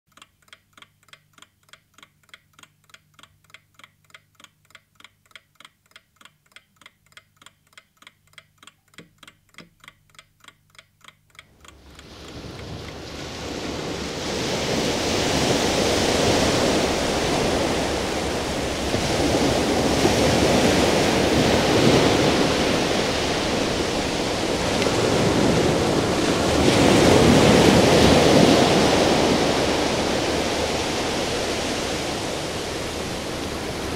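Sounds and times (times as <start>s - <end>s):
rapid even clicking: 0.1s - 13.0s
low hum: 11.3s - 33.9s
loud rushing noise like surf: 11.8s - 33.9s.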